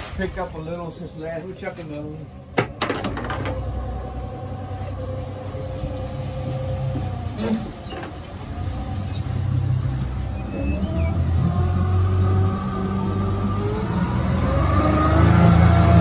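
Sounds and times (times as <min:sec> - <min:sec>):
boat motor running: 0:02.4 - 0:16.0
knock: 0:02.6 - 0:03.6.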